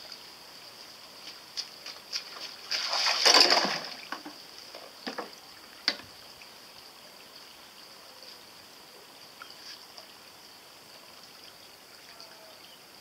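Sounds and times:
short sharp splashes: 2.1s - 4.2s
toy boat hull splashing: 2.7s - 4.4s.

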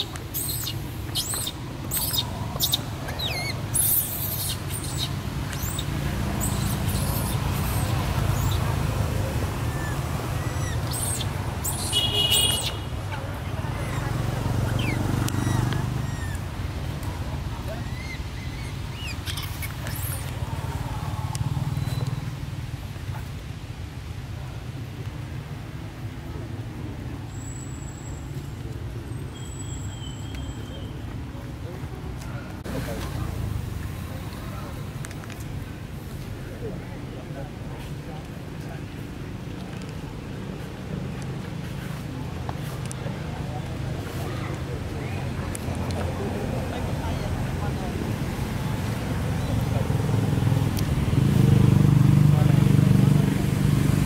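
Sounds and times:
baby monkey crying: 0.0s - 8.6s, 9.6s - 12.0s, 14.7s - 16.5s, 17.8s - 20.2s
motor vehicle rumbling: 0.0s - 54.0s.

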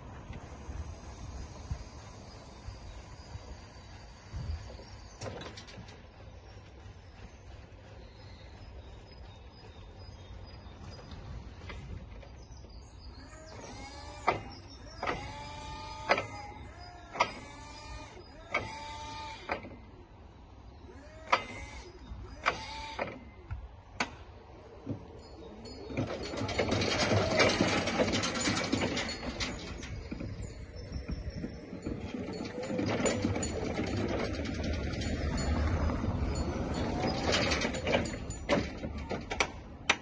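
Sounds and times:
hydraulic pump motor: 13.4s - 19.9s, 21.2s - 23.3s
pump click and rising whine: 13.5s - 19.8s.

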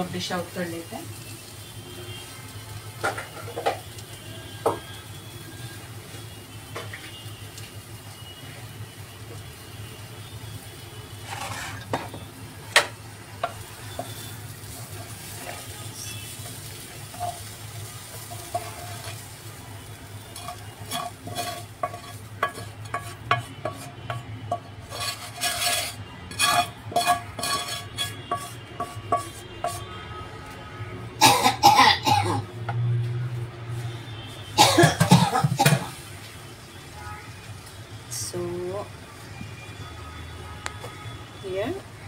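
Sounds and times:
wooden spatula scraping metal pan: 11.2s - 12.2s, 18.1s - 19.3s, 20.3s - 30.0s.

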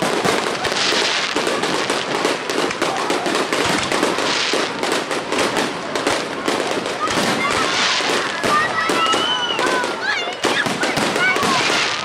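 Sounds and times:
fireworks crackling: 0.0s - 12.0s.

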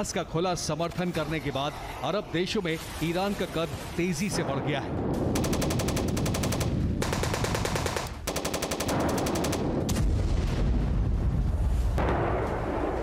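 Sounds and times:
machine gun firing bursts: 5.3s - 9.9s.

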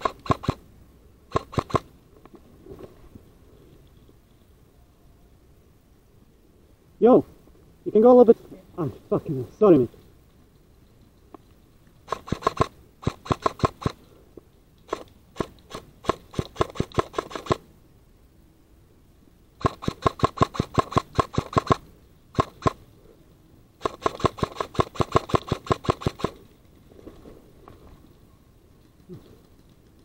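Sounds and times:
airsoft gun rapid clicks: 0.0s - 0.6s, 1.3s - 1.9s, 12.0s - 14.0s, 14.8s - 17.6s, 19.6s - 22.8s, 23.8s - 26.5s.

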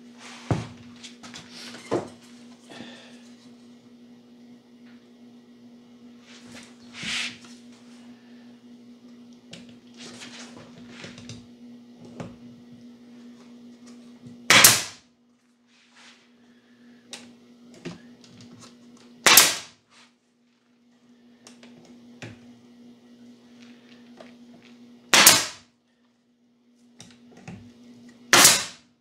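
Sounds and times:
pneumatic nailer firing: 14.5s - 15.0s, 19.2s - 19.8s, 25.1s - 25.7s, 28.3s - 28.9s.

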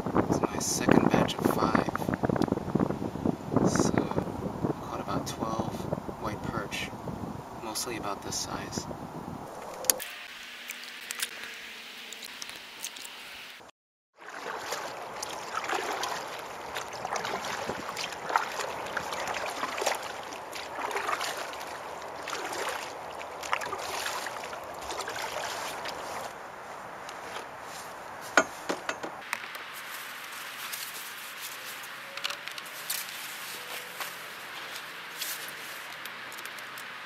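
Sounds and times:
paddle splashing through water: 14.2s - 26.4s
handling noise on a dock: 14.3s - 37.0s
sharp knocks: 28.3s - 29.2s.

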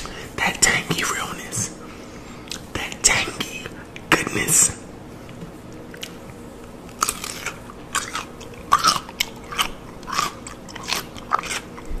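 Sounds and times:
crunching bites of pickle: 6.9s - 12.0s.

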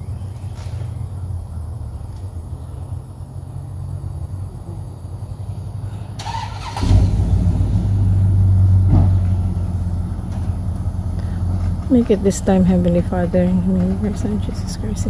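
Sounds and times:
pickup truck engine revving: 3.0s - 15.0s.

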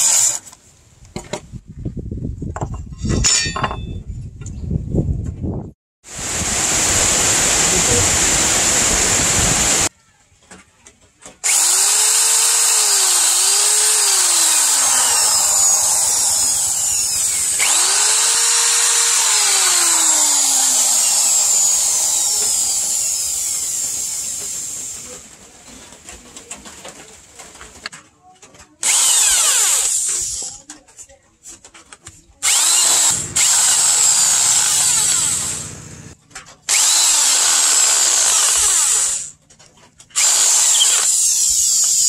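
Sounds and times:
electric drill whining: 6.2s - 9.9s, 11.4s - 25.0s, 28.8s - 30.6s, 32.4s - 39.4s, 40.2s - 42.0s.

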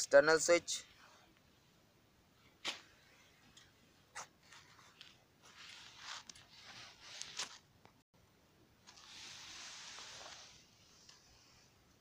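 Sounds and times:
camera handling rustling and scraping: 3.5s - 7.6s.

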